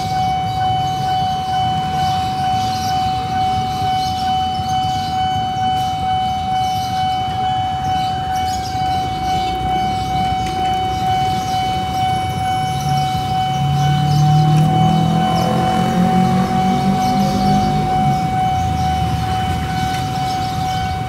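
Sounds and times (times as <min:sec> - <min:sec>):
level crossing alarm high tone: 0:00.0 - 0:21.0
motorcycle engines idling: 0:00.0 - 0:21.0.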